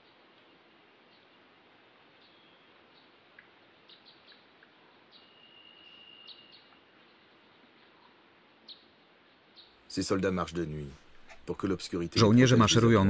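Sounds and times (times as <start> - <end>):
low hiss: 0.0 - 13.0
thin steady whistle-like tone: 2.2 - 3.0, 5.1 - 6.9
soft chirps and clicks: 2.2 - 8.9.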